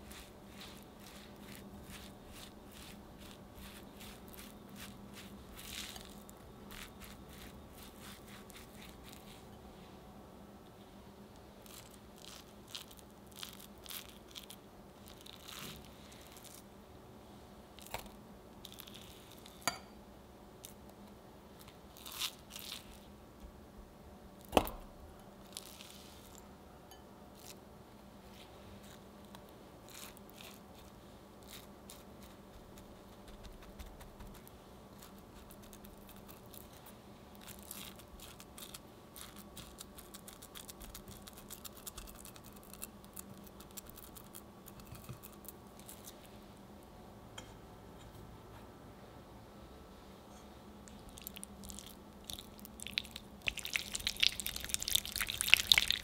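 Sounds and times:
crunchy crackling of crumbs: 0:00.0 - 0:09.6, 0:11.4 - 0:16.7, 0:17.7 - 0:19.7, 0:20.6 - 0:23.2, 0:24.4 - 0:26.5, 0:28.2 - 0:46.4, 0:50.9 - 0:56.0
spatula scraping crumbs: 0:00.0 - 0:09.6, 0:28.3 - 0:46.3.

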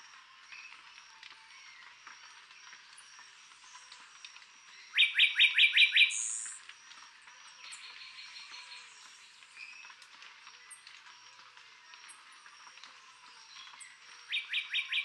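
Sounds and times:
bird whistling song: 0:04.9 - 0:06.6, 0:13.7 - 0:15.0.

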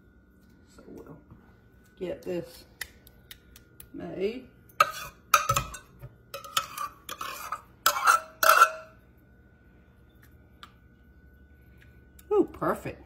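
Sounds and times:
metal cup scraping and clinking: 0:04.8 - 0:09.0.

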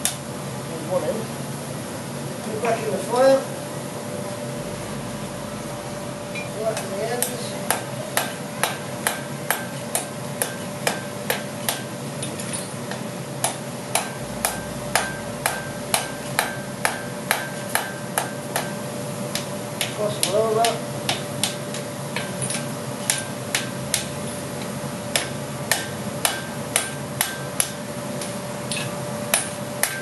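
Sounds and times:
steady low hum: 0:00.0 - 0:30.0
hammer ringing on anvil: 0:12.5 - 0:21.6, 0:25.1 - 0:27.8, 0:28.7 - 0:30.0.

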